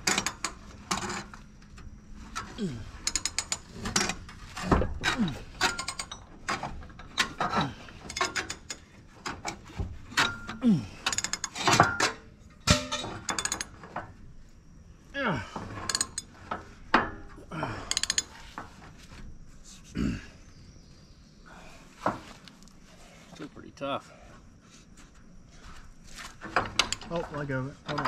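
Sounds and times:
socket ratchet clicking: 3.1 - 3.7, 13.3 - 13.7, 15.9 - 16.3, 17.9 - 18.3.

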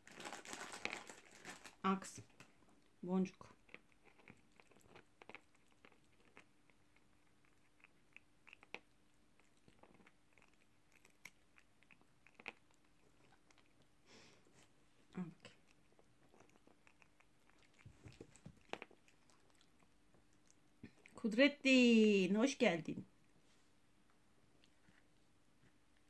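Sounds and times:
cat crunching a cracker: 0.0 - 14.0, 15.5 - 21.2.

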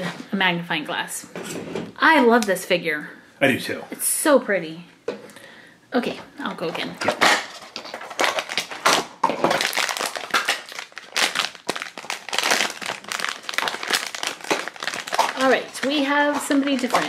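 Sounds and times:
foil bag crinkling: 7.2 - 17.0.

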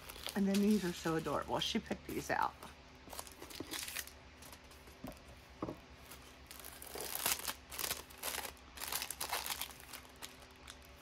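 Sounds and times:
plastic packaging crinkling: 0.0 - 1.6, 3.1 - 4.8, 6.0 - 11.0.

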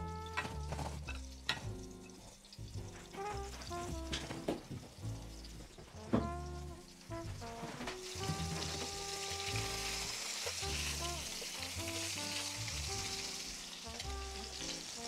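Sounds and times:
background music: 0.0 - 15.0
fish sizzling in oil: 0.1 - 15.0
metal utensils in pan: 0.2 - 4.4.

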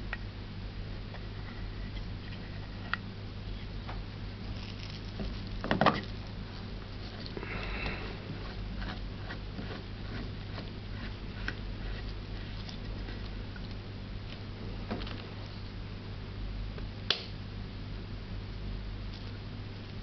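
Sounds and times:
low steady hum: 0.0 - 20.0
scraping rustle: 4.4 - 15.7.

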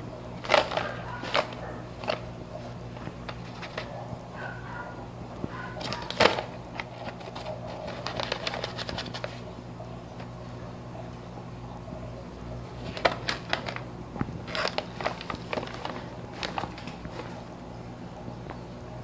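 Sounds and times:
steady low hum: 0.0 - 19.0
paper bag crinkling: 0.4 - 4.0, 5.6 - 9.5, 12.8 - 17.6.

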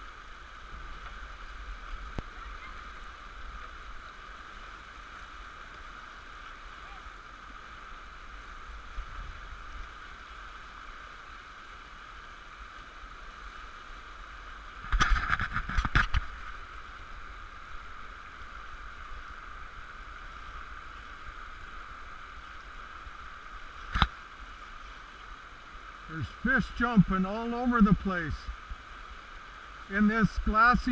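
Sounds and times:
whitewater rushing: 15.7 - 30.9.

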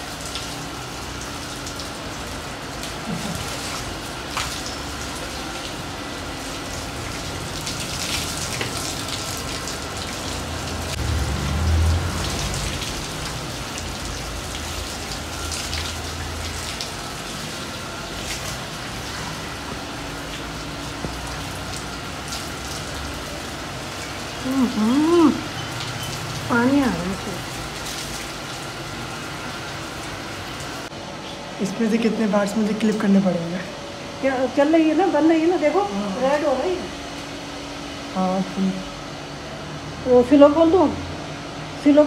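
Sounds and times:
hose water spraying: 0.0 - 30.9.

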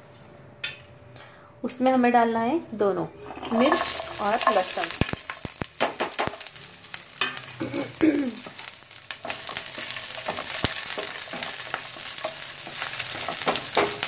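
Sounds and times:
garlic sizzling in hot oil: 3.4 - 14.0
spatula scraping pan: 9.2 - 14.0.

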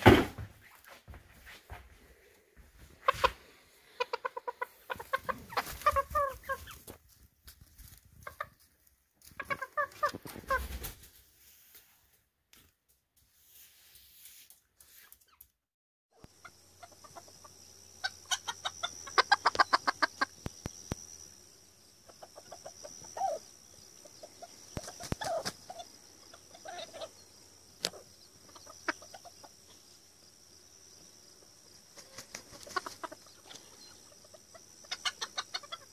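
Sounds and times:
chicken clucking: 2.8 - 7.1, 7.7 - 10.9, 16.2 - 20.5, 22.0 - 27.2, 27.8 - 29.7, 32.0 - 35.9.

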